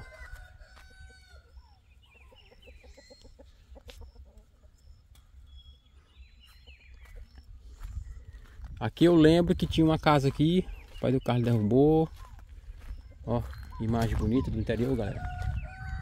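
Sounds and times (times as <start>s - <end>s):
chickens clucking: 0.0s - 16.0s.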